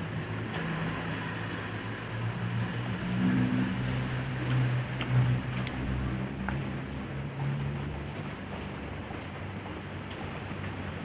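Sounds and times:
small wet clicks: 0:03.8 - 0:07.1
chewing: 0:04.1 - 0:06.6.

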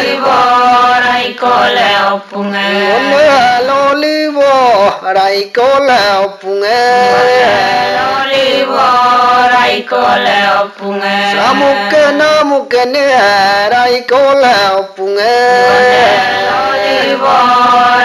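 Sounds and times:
person chanting a melodic song: 0:00.0 - 0:03.9, 0:06.2 - 0:13.8, 0:14.8 - 0:18.0.

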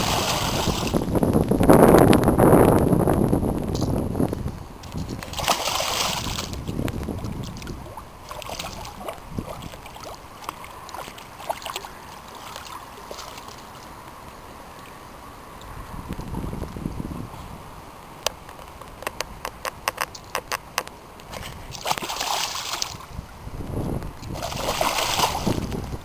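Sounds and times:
fish splashing at water surface: 0:00.0 - 0:01.0, 0:05.1 - 0:13.8, 0:21.3 - 0:23.1, 0:24.3 - 0:25.7
quiet water sounds: 0:00.0 - 0:26.0.

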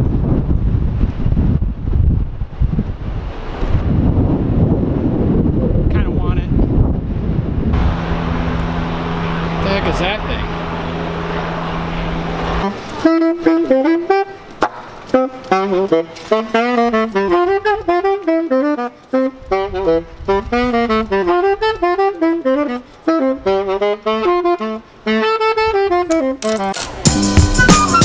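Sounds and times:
solo saxophone melody: 0:07.8 - 0:28.0.

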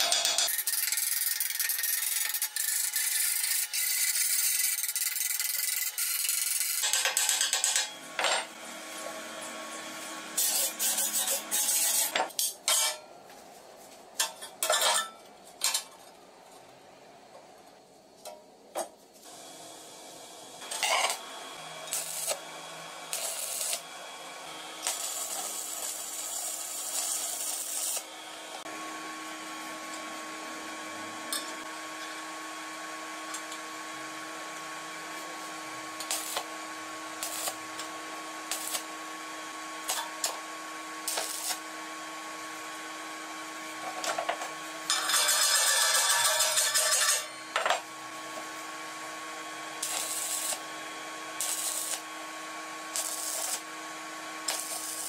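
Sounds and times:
metal plates scraping and clanking: 0:44.9 - 0:47.3.

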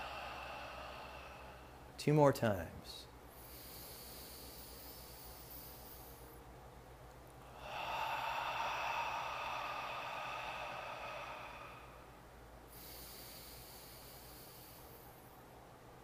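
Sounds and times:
man exhaling through mouth: 0:00.0 - 0:01.8, 0:07.4 - 0:12.1
man inhaling through nose: 0:00.0 - 0:01.8, 0:03.3 - 0:06.4, 0:07.4 - 0:12.1, 0:12.7 - 0:15.4.

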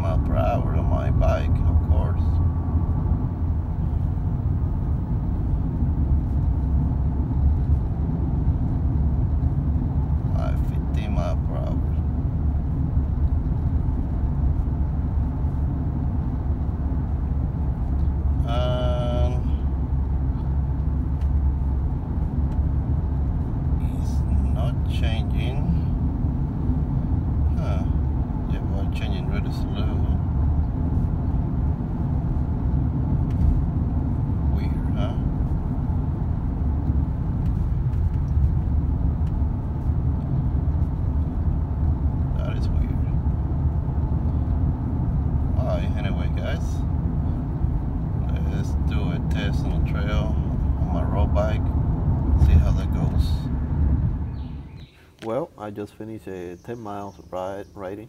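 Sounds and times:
car road and engine rumble: 0:00.0 - 0:58.0.

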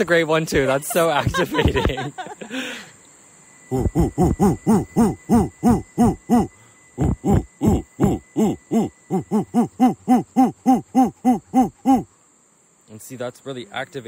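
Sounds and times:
man laughing ho-ho rhythmically: 0:00.6 - 0:02.8, 0:03.7 - 0:12.1.

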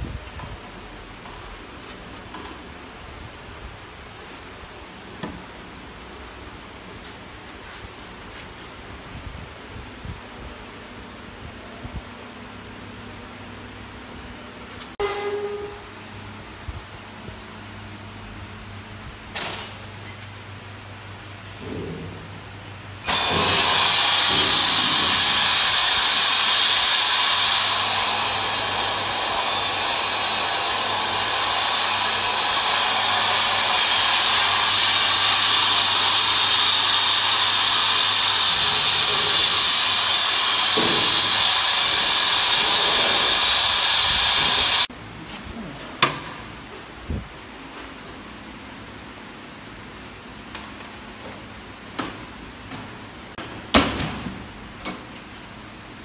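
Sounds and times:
pressure fryer steam hiss: 0:23.0 - 0:46.3.

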